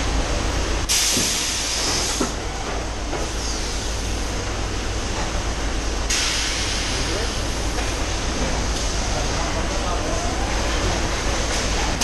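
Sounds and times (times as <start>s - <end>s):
compressed air hiss: 0.9s - 2.4s, 6.1s - 7.4s.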